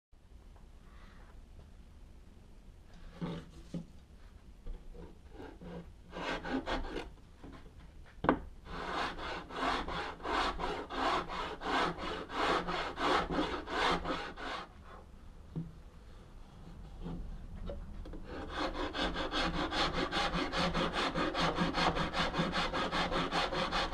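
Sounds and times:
rasp scraping wood: 0:04.9 - 0:07.1, 0:08.7 - 0:15.0, 0:18.2 - 0:23.9.

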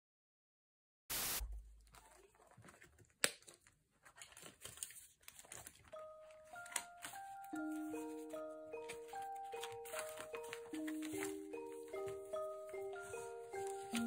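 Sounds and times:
paper pages rustling: 0:01.6 - 0:14.0
simple melody of clear notes: 0:05.9 - 0:14.0.

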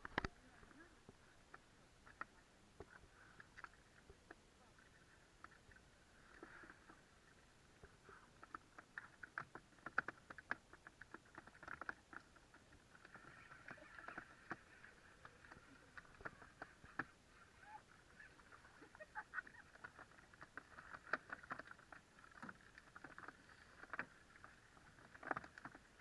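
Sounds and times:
light water sounds: 0:00.0 - 0:26.0
faint clicks and taps: 0:07.8 - 0:17.6.

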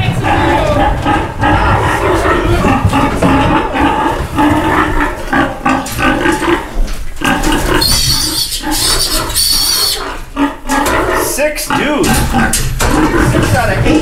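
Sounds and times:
pigs grunting loudly: 0:00.0 - 0:14.0
piglet squealing shrilly: 0:07.8 - 0:10.2.

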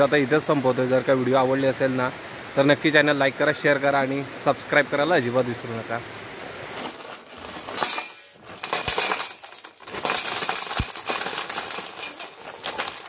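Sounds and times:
crabs clattering on a steel plate: 0:06.9 - 0:13.0.

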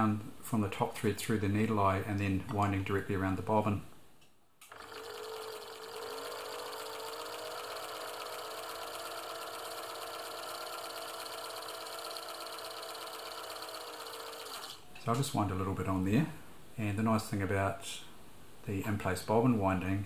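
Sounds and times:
sewing machine whirring: 0:04.6 - 0:14.9.

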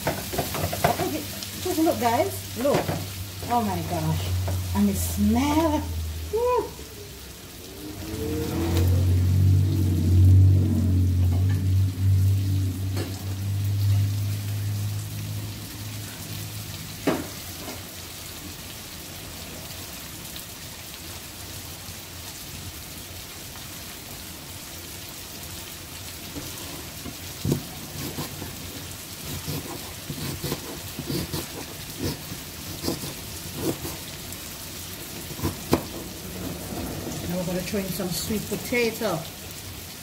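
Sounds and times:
vegetables sizzling in frying pan: 0:00.0 - 0:40.0
low hum: 0:03.6 - 0:16.7.

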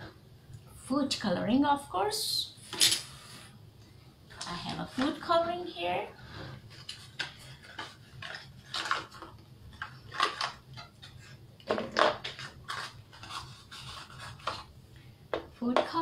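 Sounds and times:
plastic wrapping crinkling: 0:06.6 - 0:14.7.

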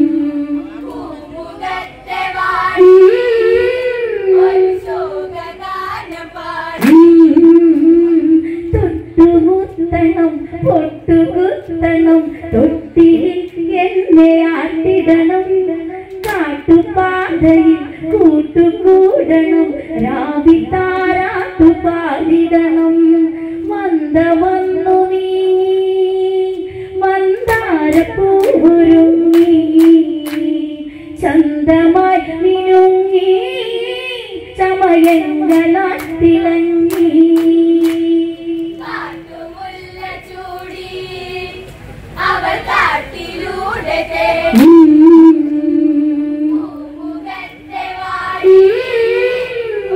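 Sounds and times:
women singing: 0:00.0 - 0:49.9
sharp hand claps: 0:16.1 - 0:16.5, 0:29.3 - 0:30.5, 0:35.0 - 0:36.2, 0:36.9 - 0:38.1.

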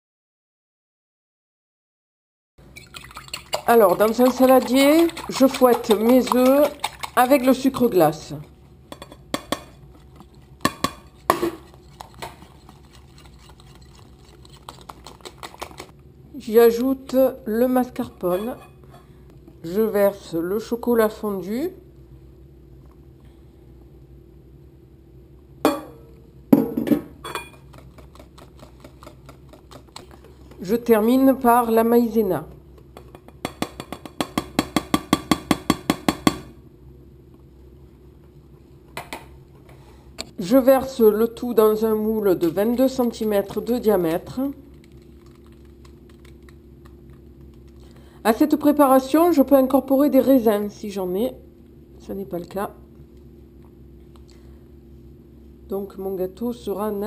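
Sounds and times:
whisk beating in a plastic bowl: 0:02.7 - 0:08.2, 0:09.4 - 0:15.9, 0:27.6 - 0:30.8.

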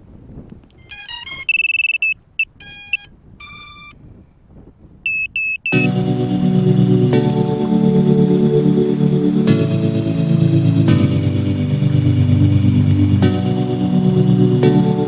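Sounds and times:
electronic beeps and tones: 0:00.8 - 0:04.0, 0:05.1 - 0:06.0
music: 0:05.7 - 0:15.0.

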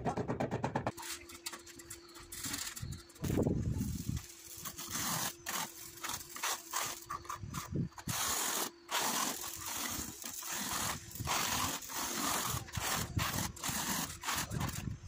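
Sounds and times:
trowel scraping wet adhesive: 0:04.6 - 0:15.0.

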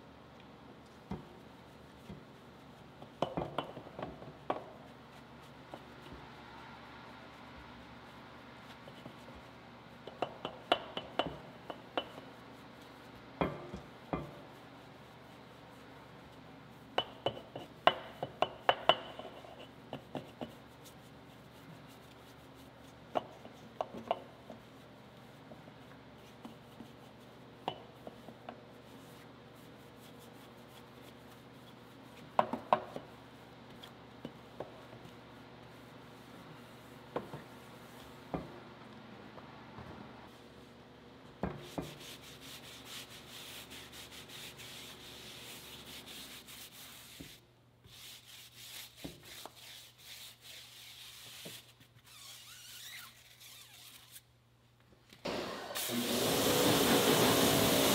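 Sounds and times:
brush knocking against wheel spokes: 0:03.0 - 0:04.9.

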